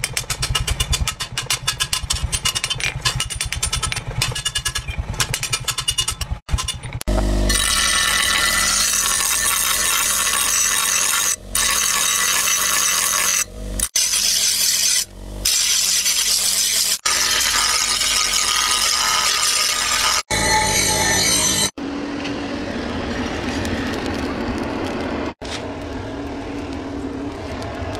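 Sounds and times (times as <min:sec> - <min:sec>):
grinding wheel grinding blade: 0:00.0 - 0:22.3.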